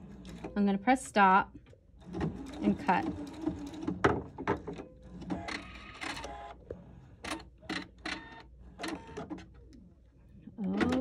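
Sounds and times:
sewing machine whirr: 2.0s - 4.1s.

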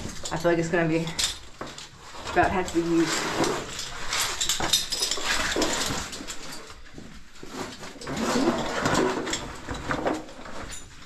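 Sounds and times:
clothing scraping against rock: 7.3s - 9.3s.

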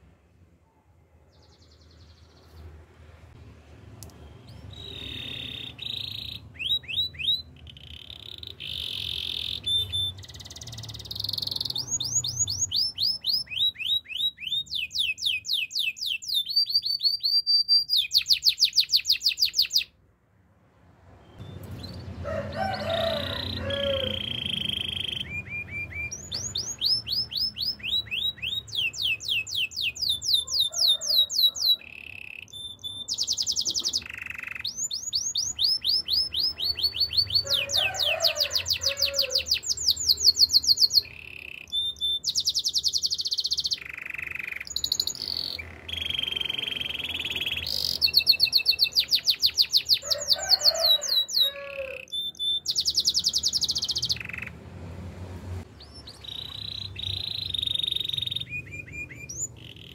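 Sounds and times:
canary singing trills: 4.0s - 20.0s, 21.2s - 54.6s, 55.7s - 59.9s.

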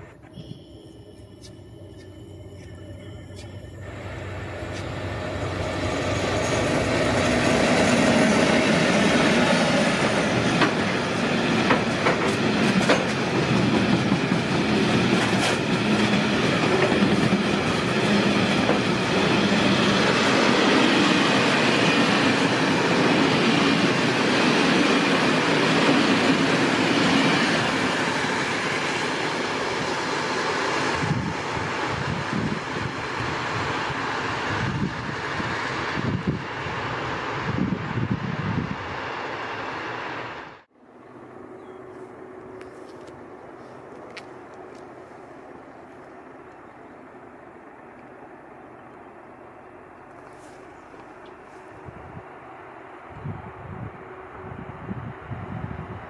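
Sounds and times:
freight train passing: 0.0s - 56.0s
wheels clattering over rails: 7.4s - 20.4s.

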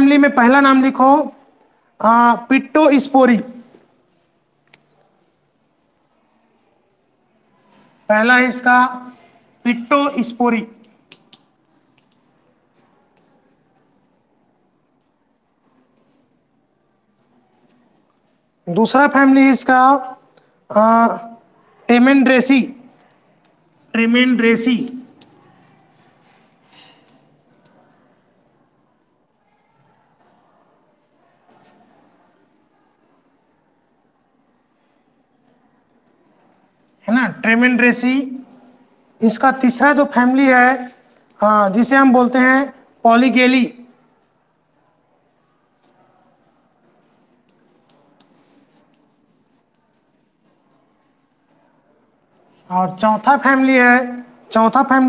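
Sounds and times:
chalk scratching on blackboard: 8.6s - 16.3s, 23.7s - 28.2s, 31.6s - 33.6s, 34.7s - 36.5s, 46.7s - 54.5s.

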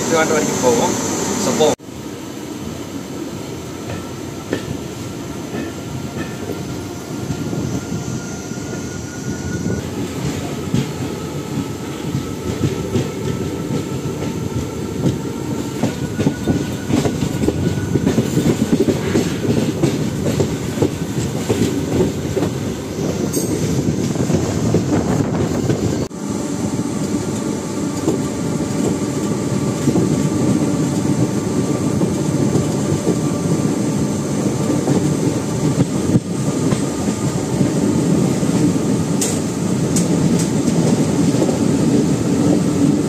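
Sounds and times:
train rumbling on rails: 0.0s - 43.0s.

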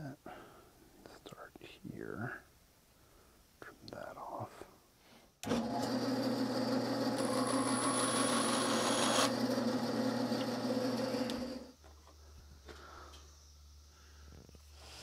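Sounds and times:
bandsaw motor hum: 5.4s - 11.8s.

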